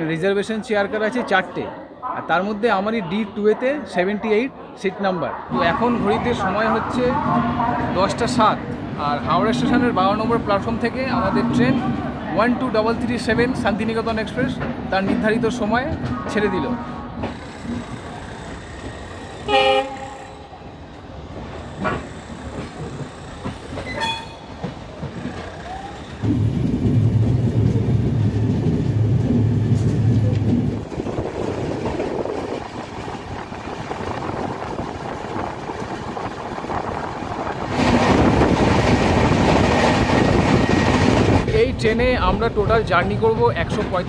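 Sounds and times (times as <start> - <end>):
train rumbling and clattering: 5.3 - 44.0
train horn toot: 19.5 - 20.4, 23.9 - 24.5.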